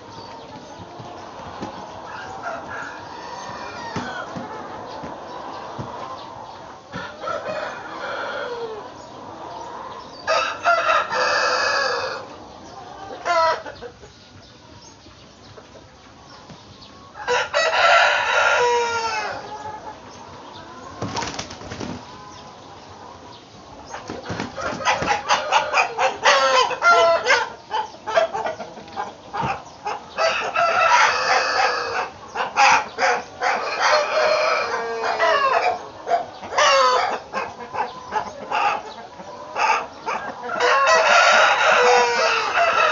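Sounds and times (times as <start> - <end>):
roosters crowing: 0.0 - 15.0, 15.8 - 42.9
wings flapping: 21.0 - 22.1, 24.0 - 25.3.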